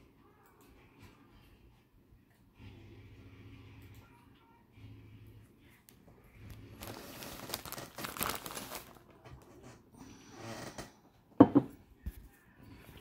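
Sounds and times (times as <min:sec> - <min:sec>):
plastic mailer crinkling: 0:06.5 - 0:09.3.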